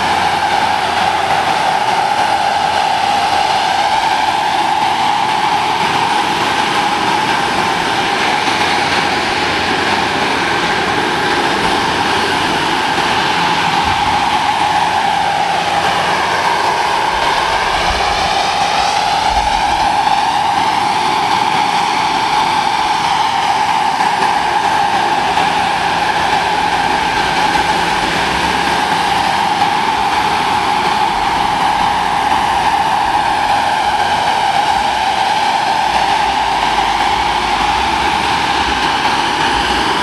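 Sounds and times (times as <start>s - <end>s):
model gas turbine whining: 0.0s - 40.0s.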